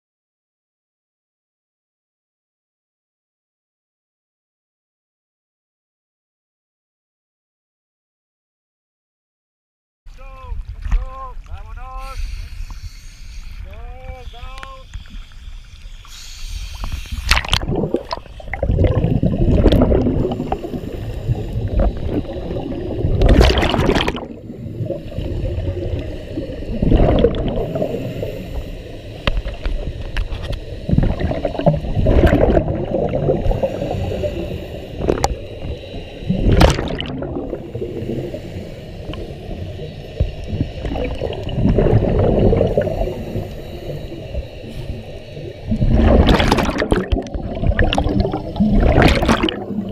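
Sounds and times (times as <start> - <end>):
exhaled bubbles gurgling underwater: 14.6 - 49.9.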